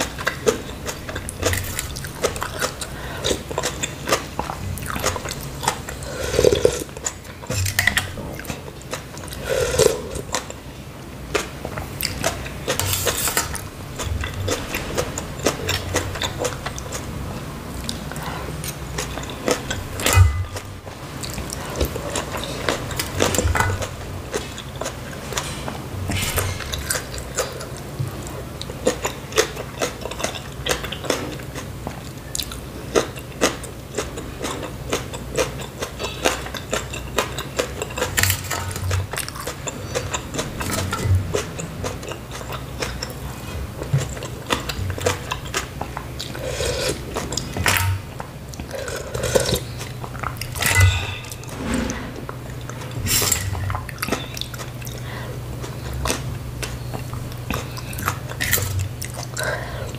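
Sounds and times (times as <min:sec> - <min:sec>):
person chewing noodles: 0:00.0 - 0:10.7, 0:11.3 - 0:51.5, 0:52.3 - 0:59.9
wet mouth sounds: 0:00.2 - 0:08.6, 0:09.2 - 0:10.5.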